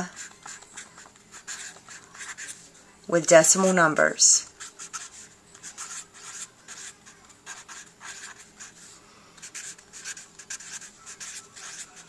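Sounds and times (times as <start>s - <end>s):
marker scratching on paper: 0.0s - 2.7s, 4.4s - 12.0s.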